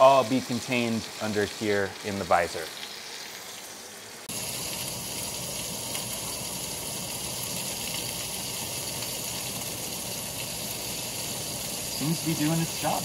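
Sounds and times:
chicken sizzling in a skillet: 0:00.0 - 0:13.0
vent fan running: 0:04.3 - 0:13.0.

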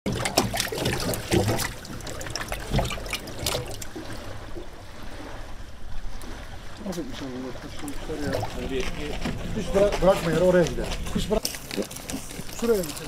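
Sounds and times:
water sloshing in plastic tub: 0:00.1 - 0:13.0.

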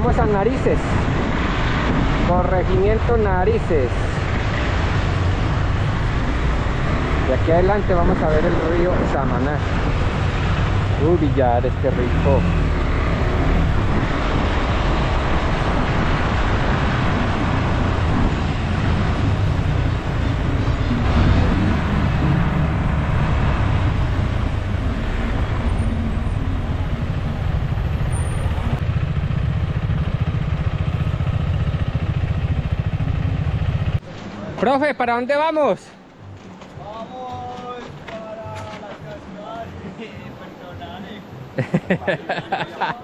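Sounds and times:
wind and road noise: 0:00.0 - 0:43.0
motorcycle engine running: 0:25.6 - 0:34.0.

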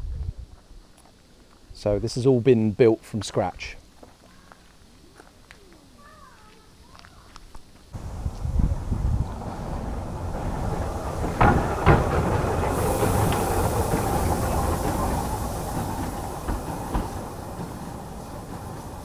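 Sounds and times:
steam hissing: 0:08.0 - 0:19.0
wheels rumbling on rail: 0:08.0 - 0:19.0.

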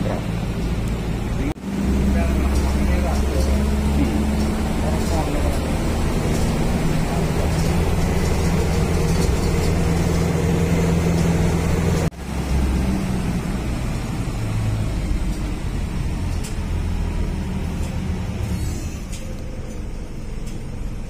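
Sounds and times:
bus engine droning: 0:00.0 - 0:21.0
low engine hum: 0:00.0 - 0:21.0.

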